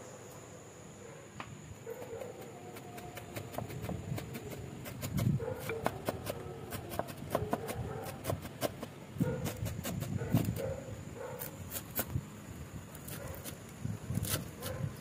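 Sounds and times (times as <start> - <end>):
knife chopping on wooden board: 2.7 - 10.5.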